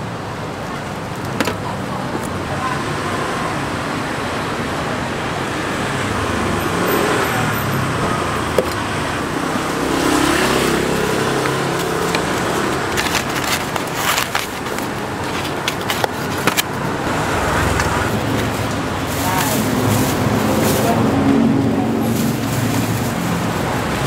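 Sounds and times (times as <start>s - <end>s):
street traffic: 0.0s - 24.0s
foam box clicking and creaking: 9.8s - 20.8s.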